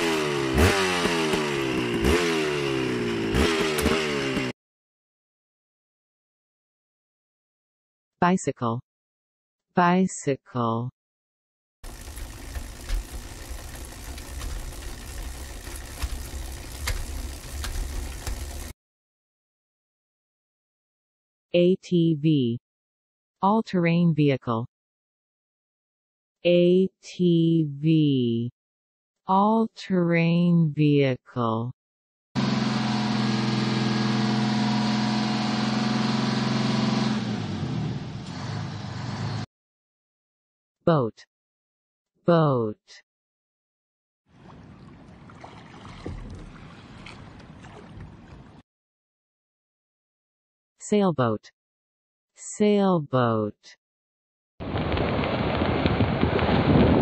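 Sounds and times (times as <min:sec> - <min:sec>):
atv engine running: 0:00.0 - 0:04.5, 0:11.8 - 0:18.7, 0:32.4 - 0:39.3
bicycle clicks and rattles: 0:11.8 - 0:18.7
bicycle rolling rumble: 0:11.8 - 0:18.7.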